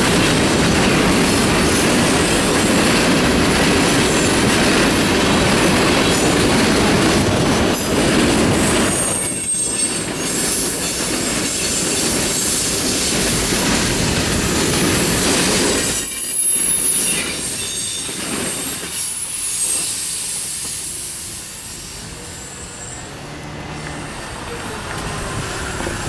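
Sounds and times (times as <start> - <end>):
freight train wheels rumbling: 0.0 - 26.0
wheel squeal: 8.6 - 12.6, 15.8 - 23.3.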